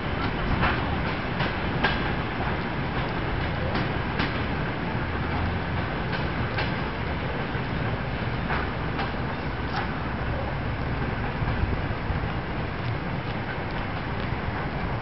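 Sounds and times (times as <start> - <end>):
train wheels rumbling on rails: 0.0 - 15.0
wheels clicking over rail joints: 0.0 - 15.0.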